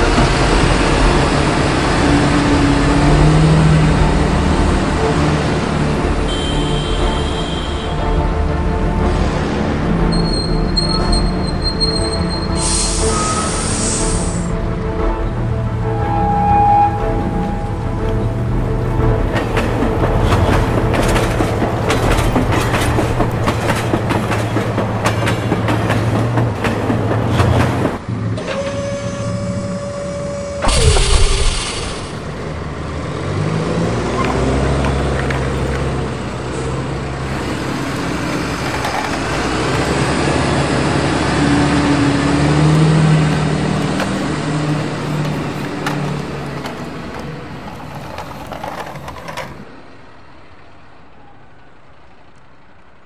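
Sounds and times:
bus engine revving: 0.0 - 6.3, 17.1 - 49.8
horn steady note: 4.5 - 19.3, 28.4 - 32.6
air hiss burst: 12.6 - 14.5, 30.6 - 32.3.

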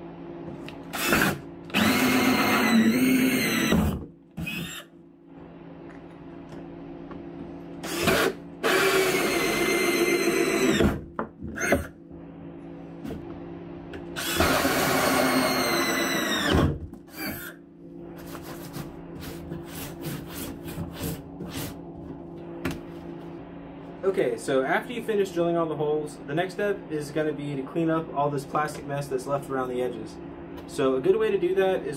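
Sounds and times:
cordless drill whining: 0.9 - 4.9, 7.8 - 11.0, 14.2 - 17.6
hole saw cutting plastic: 0.9 - 4.9, 7.8 - 11.0, 14.2 - 17.6.

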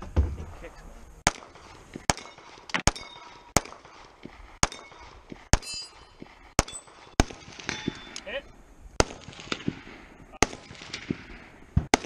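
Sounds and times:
pistol shots: 1.2 - 8.2, 9.0 - 12.0
steel targets clanging: 4.6 - 8.3.

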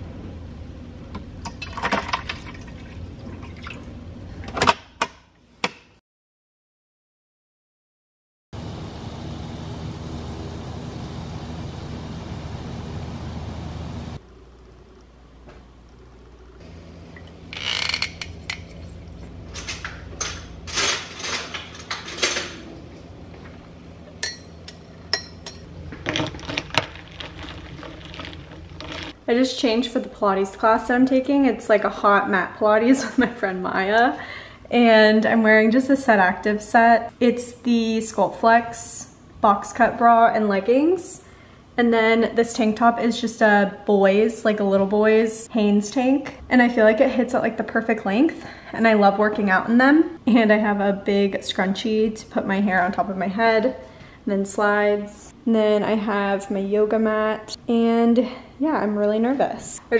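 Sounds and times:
low steady hum: 8.6 - 59.9
glassware and utensils clinking: 24.2 - 29.2.

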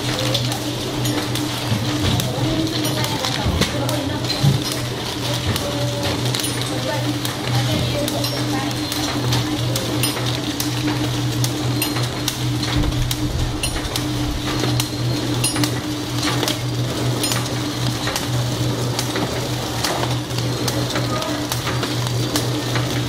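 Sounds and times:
wrapping machine humming: 0.0 - 23.0
sharp machine clicks: 11.4 - 16.6.

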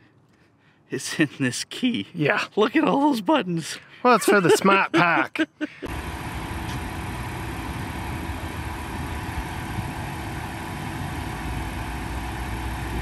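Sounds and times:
car engine idling: 5.8 - 13.0.

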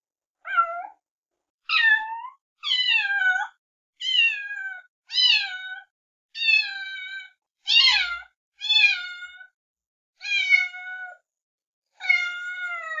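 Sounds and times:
cat meowing: 0.5 - 1.0, 1.7 - 9.5, 10.2 - 11.2, 12.0 - 13.0.

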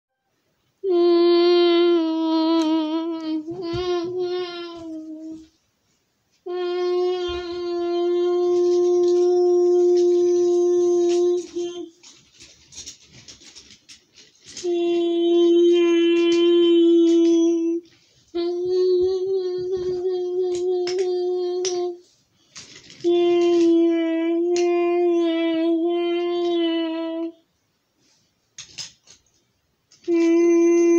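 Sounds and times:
child singing long notes: 0.8 - 5.5, 6.4 - 12.0, 14.6 - 22.0, 23.0 - 27.4, 30.0 - 30.9.

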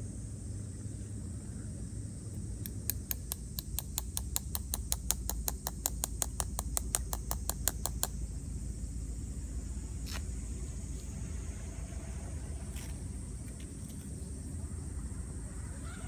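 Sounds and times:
steady low rumble: 0.0 - 16.0
fast sharp clicks: 2.6 - 8.2.

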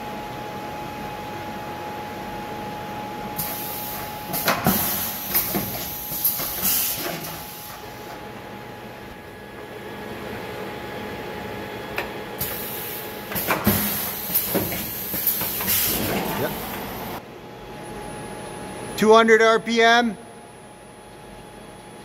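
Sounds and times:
pneumatic hiss: 3.4 - 8.2, 12.4 - 16.9.

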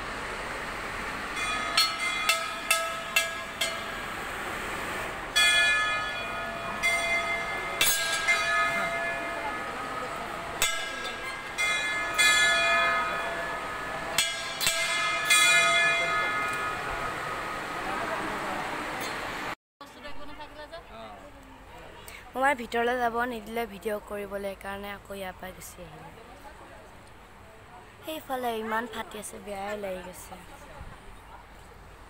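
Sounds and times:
temple bells ringing: 1.3 - 4.4, 5.3 - 18.2.

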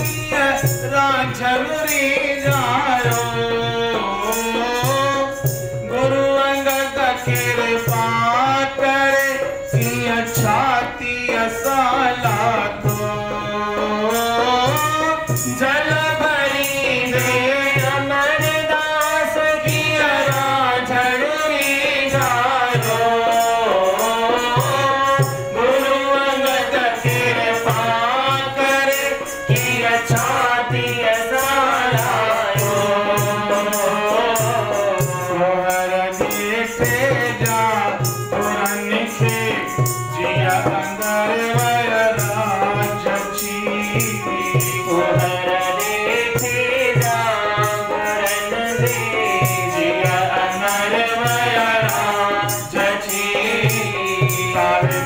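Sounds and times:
harmonium: 0.0 - 55.0
light rattling percussion: 0.0 - 55.0
man singing devotional song: 0.0 - 55.0.

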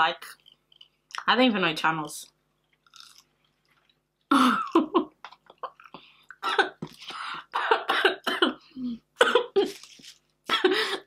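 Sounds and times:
woman coughing: 4.3 - 5.0, 6.4 - 6.9, 7.5 - 9.8, 10.5 - 11.0.

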